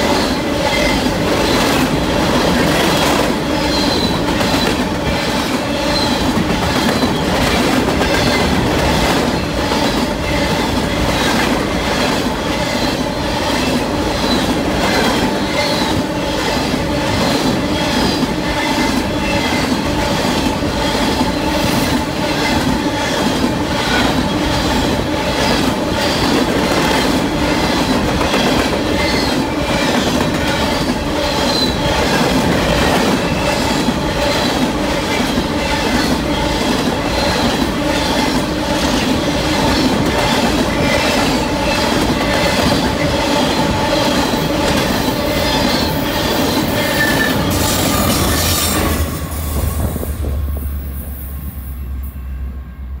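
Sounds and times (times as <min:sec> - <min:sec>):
train wheels clattering: 0:00.0 - 0:50.9
wheel squeal: 0:03.6 - 0:04.7, 0:45.0 - 0:50.0.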